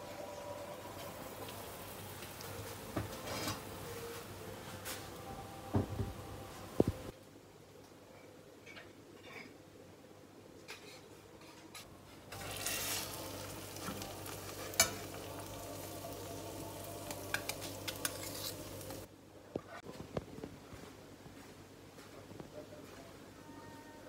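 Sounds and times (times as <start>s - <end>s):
food sizzling in frying pan: 0.0s - 4.3s, 12.3s - 19.1s
metal spoon scraping pan: 12.3s - 13.2s, 17.3s - 19.1s.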